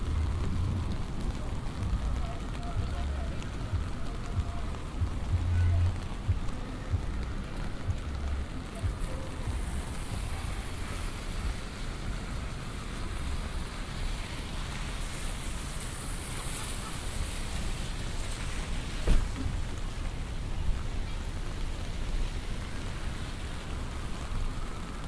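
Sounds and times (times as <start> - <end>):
rain on an umbrella: 0.0 - 25.0
traffic on wet roads: 0.0 - 25.0.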